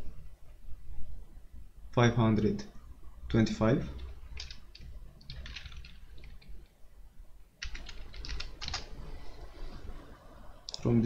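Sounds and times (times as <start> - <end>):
computer keyboard typing: 4.0 - 6.6, 7.6 - 9.0.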